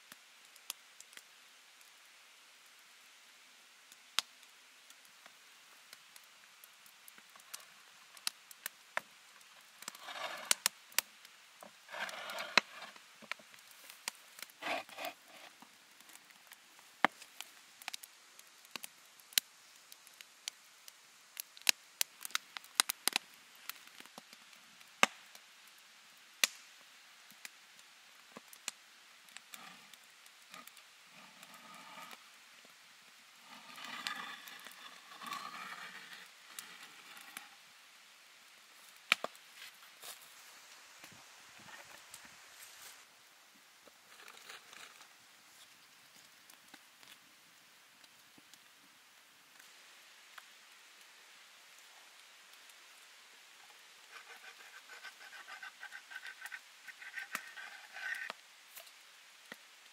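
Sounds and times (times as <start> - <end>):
wood fire crackling: 0.1 - 3.2, 3.8 - 59.9
rustling: 29.6 - 32.3, 33.4 - 37.6, 38.7 - 43.1, 53.6 - 59.0.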